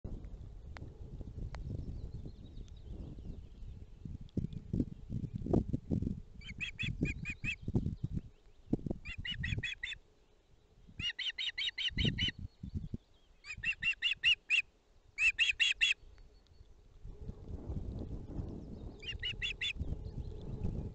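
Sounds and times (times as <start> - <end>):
osprey whistled chirps: 11.0 - 16.5, 18.7 - 20.4.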